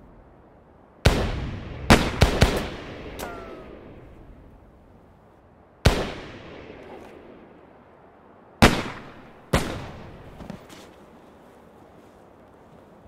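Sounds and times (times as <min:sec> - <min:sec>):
revolver gunshots with echo: 0:01.0 - 0:04.2, 0:05.8 - 0:07.5, 0:08.6 - 0:10.2.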